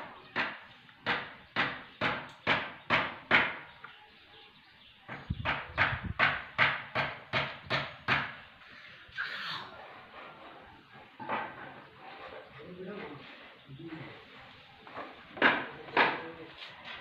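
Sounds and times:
sharp knocks: 0.4s - 3.7s, 5.1s - 8.4s.

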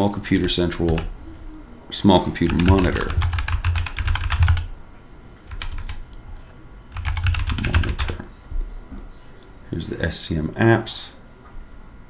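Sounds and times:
typing on a computer keyboard: 0.4s - 1.1s, 2.4s - 4.7s, 5.5s - 6.1s, 6.9s - 8.3s.

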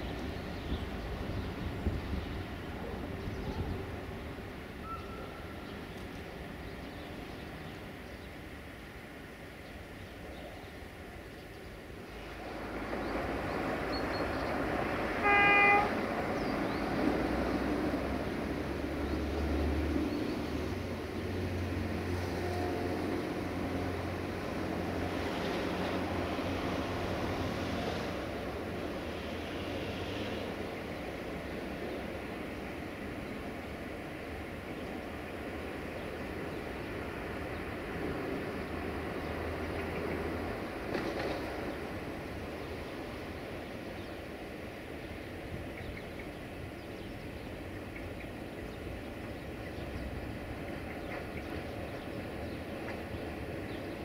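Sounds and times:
diesel locomotive engine droning: 0.0s - 54.0s
bird chirps: 4.8s - 6.1s.

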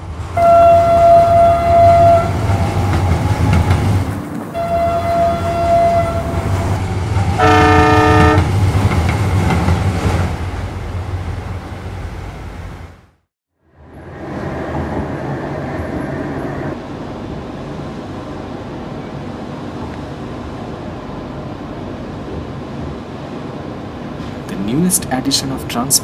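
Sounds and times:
electric train rumbling: 0.0s - 26.0s
train horn blast: 0.4s - 3.6s, 4.5s - 8.5s.

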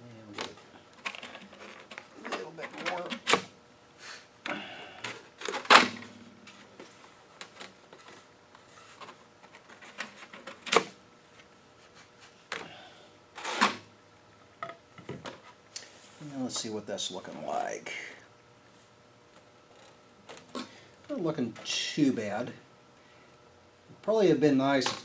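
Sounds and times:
quiet handling noise: 0.0s - 3.6s, 4.4s - 12.7s, 13.6s - 18.1s, 18.7s - 22.6s.

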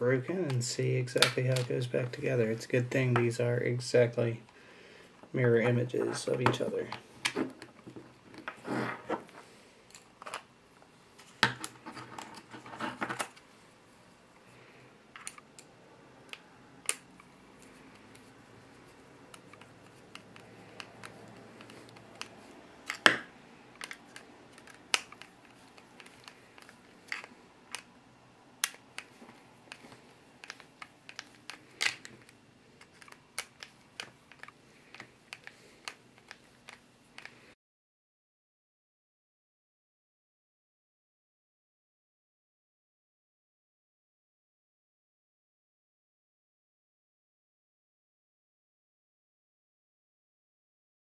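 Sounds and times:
plastic parts clicking and knocking: 19.3s - 27.9s, 28.6s - 37.4s.

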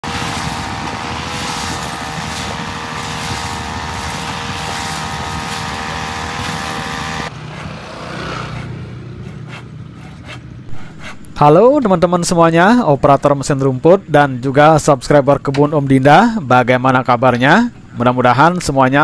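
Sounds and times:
brush cutter engine running: 0.0s - 8.8s.

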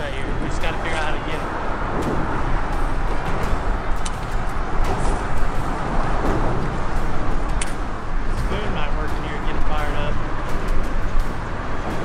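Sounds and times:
choppy water around boat: 0.0s - 12.0s
wind rumble on microphone: 0.0s - 12.0s
sharp clicks: 3.2s - 5.0s, 7.5s - 7.8s.

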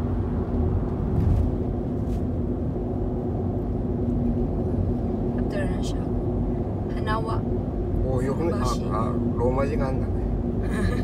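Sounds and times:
car engine and road rumble: 0.0s - 11.0s
constant low hum: 0.0s - 11.0s.

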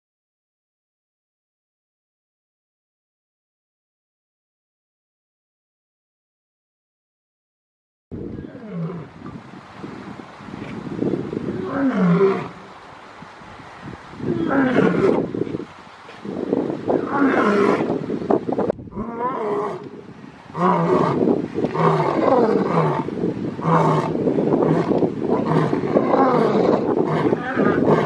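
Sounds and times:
lion roaring: 11.5s - 12.6s, 14.3s - 15.2s, 17.0s - 18.0s, 18.9s - 19.9s, 20.5s - 28.0s.

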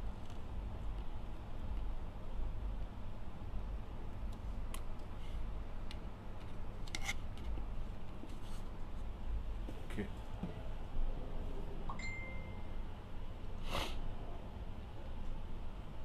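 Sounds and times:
low steady hum: 0.0s - 16.0s
small scrapes: 6.9s - 7.2s.

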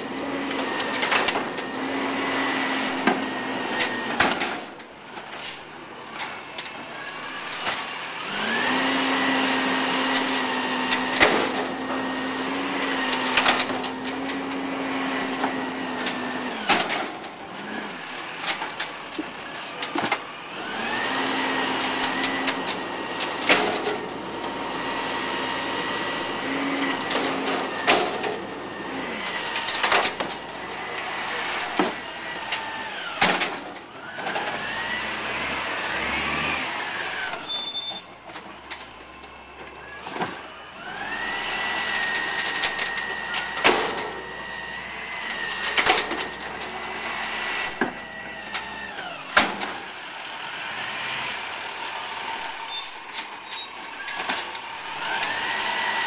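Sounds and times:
hydraulics whining: 0.0s - 56.0s
truck engine revving: 8.1s - 16.7s, 20.2s - 33.2s, 34.0s - 37.4s
carts banging and rattling: 8.9s - 34.8s, 40.0s - 44.4s, 45.4s - 49.9s.

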